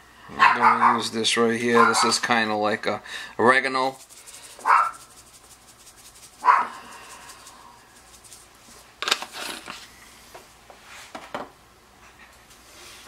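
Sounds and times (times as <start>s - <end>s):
dog barking: 0.3s - 1.1s, 1.7s - 2.2s, 4.6s - 5.1s, 6.4s - 6.9s
seasoning shaker rattling: 3.4s - 9.8s, 12.2s - 13.0s.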